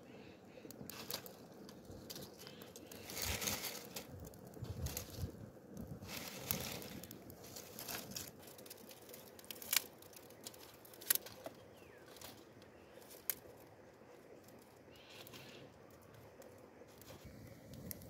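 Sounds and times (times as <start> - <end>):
small fire crackling: 0.0 - 18.0
dry twigs snapping: 0.7 - 13.6.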